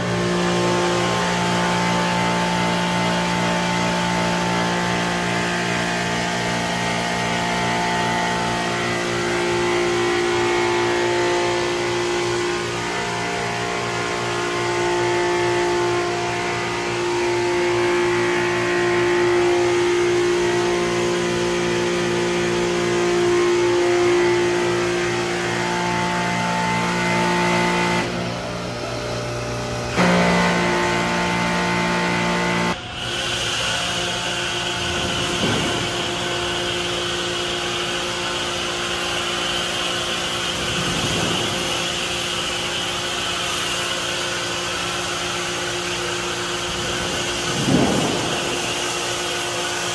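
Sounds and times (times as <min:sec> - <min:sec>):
machine humming: 0:00.0 - 0:49.9
foam spraying hiss: 0:34.8 - 0:49.9.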